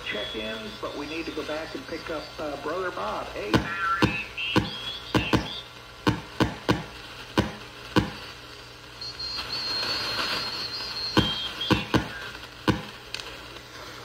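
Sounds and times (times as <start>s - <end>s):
steady high-pitched tone: 0.0s - 5.8s.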